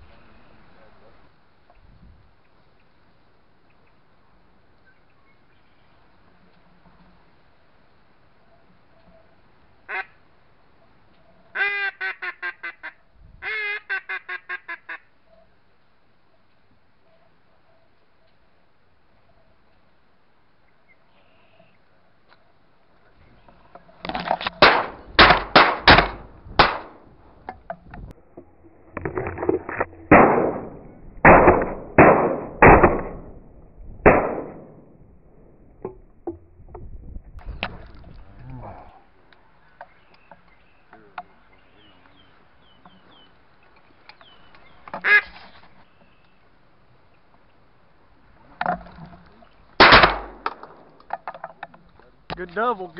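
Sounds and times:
duck quacking: 0:09.9 - 0:10.2, 0:11.5 - 0:15.1, 0:45.0 - 0:45.4
shotgun blasts echoing: 0:24.6 - 0:27.1, 0:30.0 - 0:35.6, 0:49.8 - 0:51.1.

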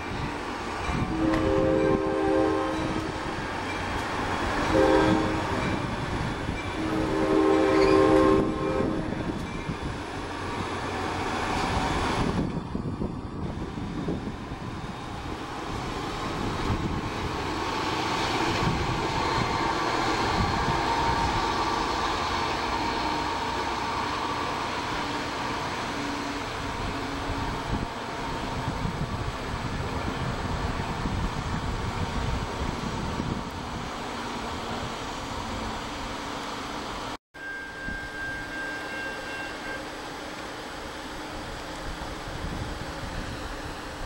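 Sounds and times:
diesel locomotive engine: 0:00.0 - 0:44.0
train rolling: 0:00.0 - 0:44.0
train chime horn blasts: 0:00.8 - 0:03.8, 0:04.6 - 0:06.0, 0:06.6 - 0:09.4, 0:37.4 - 0:40.2.

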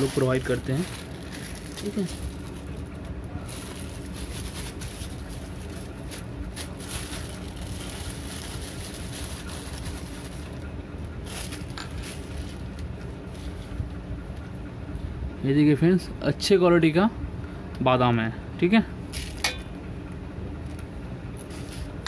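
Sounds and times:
plastic bag rustling: 0:00.0 - 0:13.9, 0:19.1 - 0:19.5, 0:21.4 - 0:22.0
low background hum: 0:00.0 - 0:22.0.

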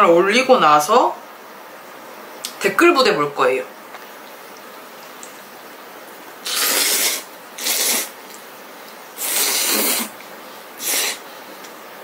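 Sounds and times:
person slurping noodles: 0:06.4 - 0:08.2, 0:09.2 - 0:10.2, 0:10.8 - 0:11.2.

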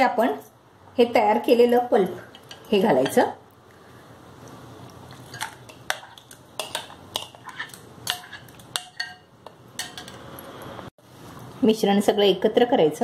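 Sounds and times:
metal spoon clinking on glass bowls: 0:05.3 - 0:10.6.

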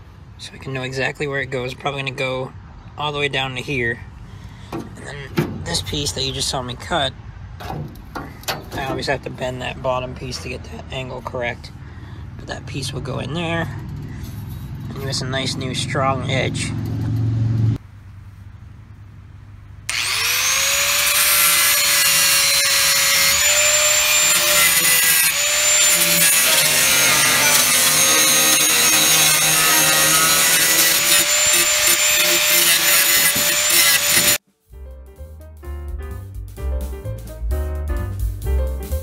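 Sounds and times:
angle grinder cutting steel: 0:19.9 - 0:34.4
piano music: 0:34.5 - 0:39.0.

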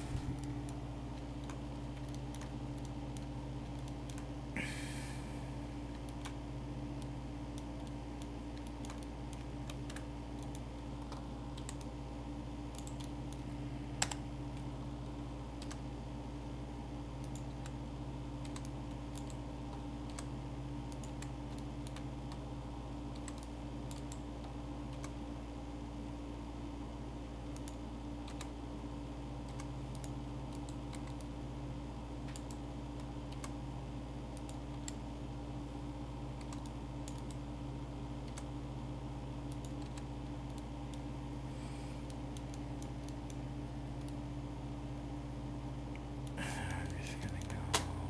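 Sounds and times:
low electrical hum: 0:00.0 - 0:48.0
keyboard and mouse clicks: 0:00.1 - 0:04.3, 0:05.9 - 0:06.4, 0:07.0 - 0:12.0, 0:12.7 - 0:13.4, 0:14.0 - 0:14.7, 0:15.6 - 0:15.8, 0:17.2 - 0:17.8, 0:18.4 - 0:20.3, 0:20.9 - 0:22.4, 0:23.1 - 0:25.2, 0:27.5 - 0:28.6, 0:29.4 - 0:31.3, 0:32.2 - 0:33.6, 0:36.4 - 0:37.4, 0:38.2 - 0:38.5, 0:39.5 - 0:41.0.

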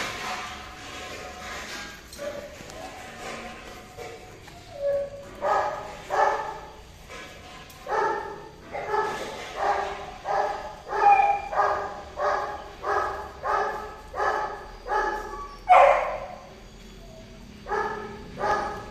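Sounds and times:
dog barking: 0:05.4 - 0:06.7, 0:07.8 - 0:16.5, 0:17.6 - 0:18.9.

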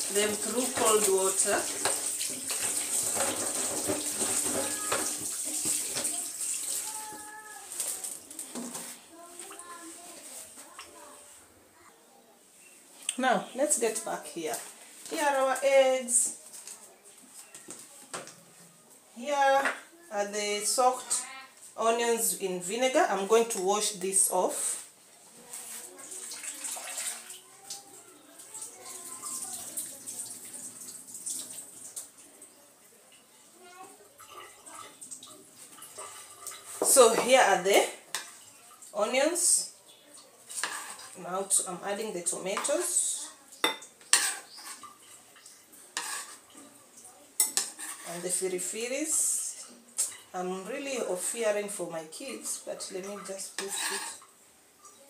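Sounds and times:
tap water running into sink: 0:00.0 - 0:08.8.

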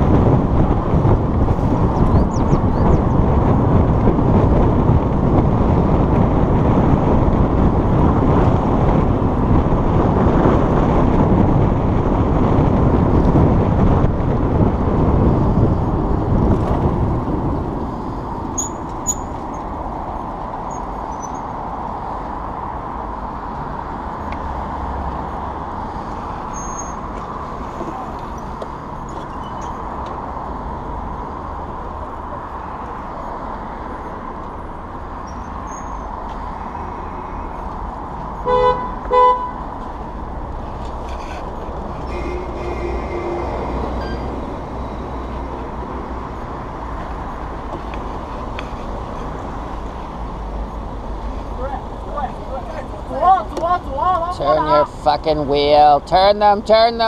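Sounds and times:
road traffic passing: 0:00.0 - 0:57.0
faint high squeaks: 0:18.6 - 0:19.6, 0:26.5 - 0:27.0, 0:35.2 - 0:36.1, 0:42.0 - 0:44.5.

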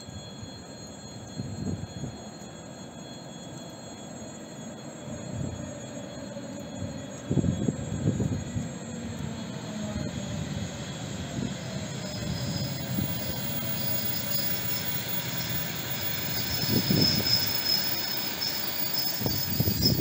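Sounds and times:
high thin squeal: 0:00.0 - 0:20.0
train wheels rumbling on rails: 0:09.2 - 0:20.0.

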